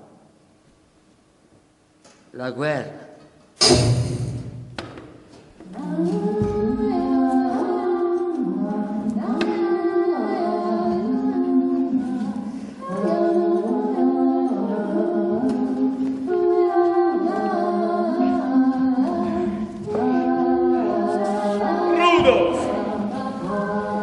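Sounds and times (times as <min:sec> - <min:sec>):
person singing unaccompanied: 0:05.7 - 0:24.0.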